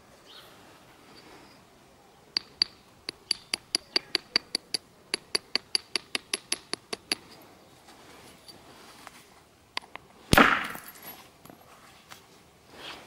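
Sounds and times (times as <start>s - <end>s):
knapping tool tapping flint: 2.3s - 7.4s.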